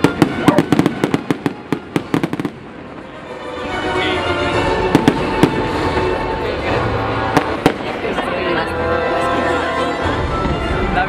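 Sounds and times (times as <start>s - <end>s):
fireworks cracking and banging: 0.0s - 8.3s.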